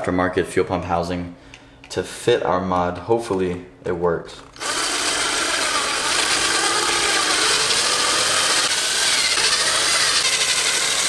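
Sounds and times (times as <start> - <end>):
power drill cutting into plastic: 4.6 - 11.0.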